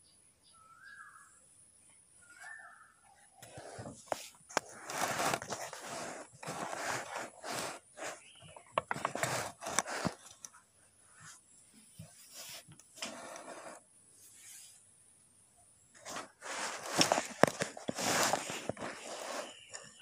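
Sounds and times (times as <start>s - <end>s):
scraping and rustling: 3.4s - 10.6s, 11.2s - 14.8s, 16.0s - 20.0s.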